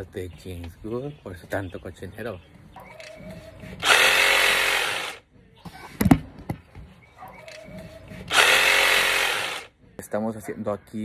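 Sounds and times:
handheld power tool running: 3.8s - 5.2s, 8.3s - 9.7s.

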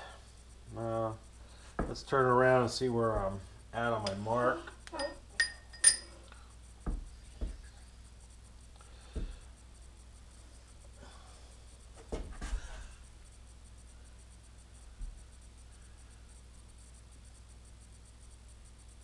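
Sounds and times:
metal clink: 5.0s - 6.2s
metal knocking and scraping on stone: 5.0s - 6.2s.

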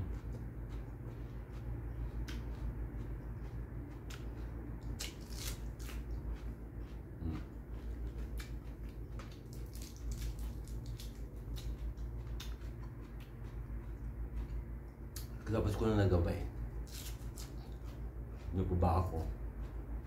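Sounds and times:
low hum: 0.0s - 20.0s
lettuce crunching: 0.1s - 15.4s, 16.8s - 18.0s
lettuce leaf tearing: 4.9s - 6.0s, 9.4s - 11.2s, 16.8s - 17.7s.

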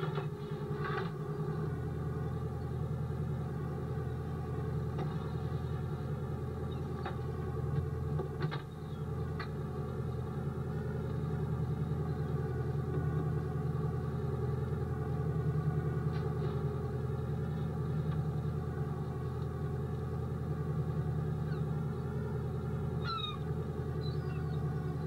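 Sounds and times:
boat engine running: 0.0s - 25.0s
gull calls: 21.4s - 21.7s, 23.0s - 24.7s.

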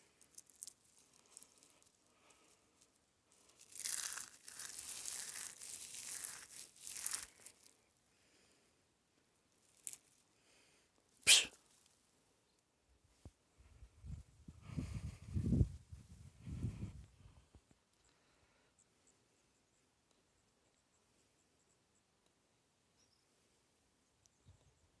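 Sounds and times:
dry grass rustling and crunching: 0.0s - 7.8s, 9.6s - 10.2s
sharp crackle: 0.0s - 7.9s, 9.6s - 10.2s, 11.2s - 12.0s.

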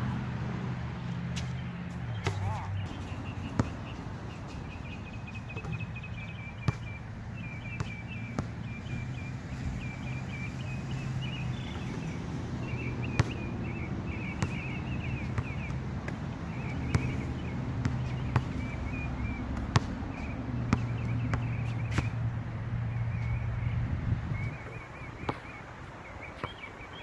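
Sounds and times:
birds chirping: 0.9s - 27.0s
basketball bouncing on hard court: 2.2s - 4.0s, 4.6s - 7.0s, 7.6s - 9.1s, 11.2s - 22.2s, 24.6s - 25.6s.

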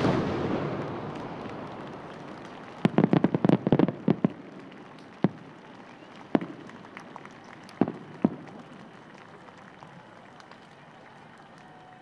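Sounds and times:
firework bangs: 0.0s - 9.2s.

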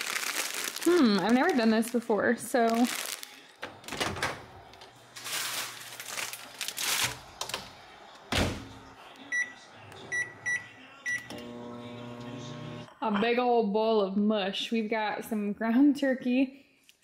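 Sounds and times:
rustling handling: 5.0s - 7.6s
microwave oven humming: 9.5s - 12.9s.

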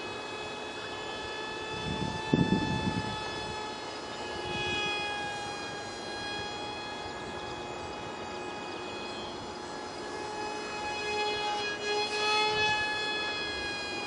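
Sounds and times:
model jet propeller whining: 0.0s - 14.0s.

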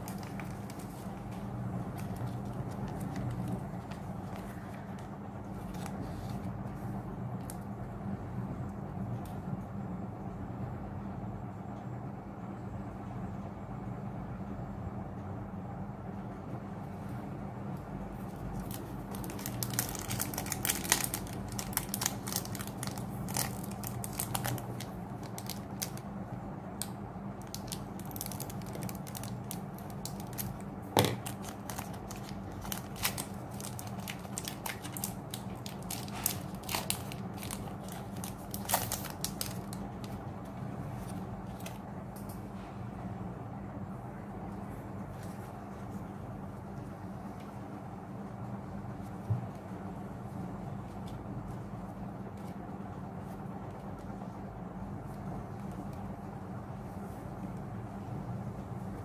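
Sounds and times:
foil wrapper crinkling: 0.0s - 5.0s, 18.4s - 26.1s, 26.8s - 40.2s
steady low hum: 0.0s - 59.0s.

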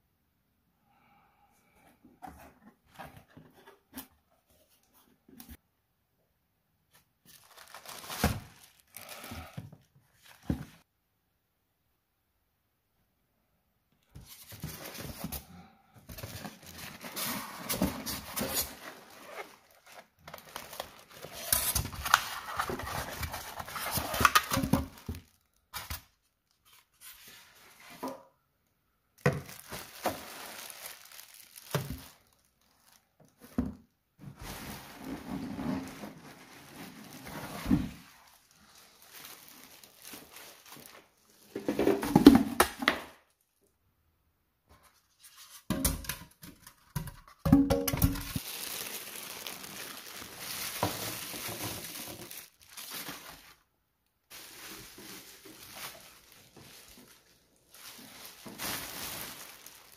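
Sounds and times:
plastic wrapping crinkling: 6.9s - 10.8s, 16.1s - 27.8s, 29.2s - 33.6s, 34.4s - 42.2s, 46.6s - 59.9s.

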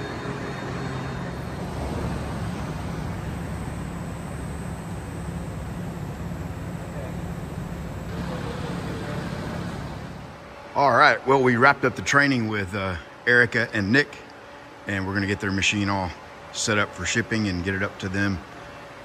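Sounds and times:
low machinery hum: 0.0s - 19.0s.

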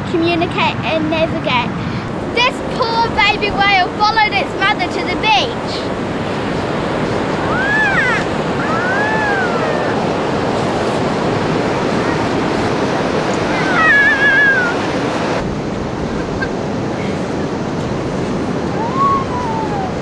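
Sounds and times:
wind noise on microphone: 0.0s - 20.0s
surf: 1.6s - 20.0s
child imitating whale cry: 7.4s - 10.1s, 13.5s - 14.8s, 18.8s - 20.0s
high gliding cries: 7.4s - 10.2s, 13.4s - 15.1s, 18.7s - 20.0s.

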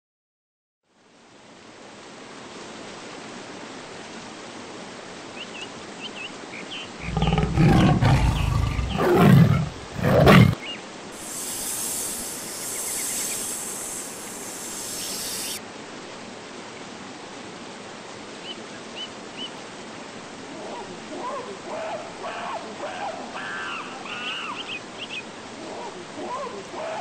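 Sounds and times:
stream rushing over waterfalls: 0.9s - 27.0s
large animal roaring: 7.0s - 10.6s
faint high chirps: 11.2s - 15.6s.

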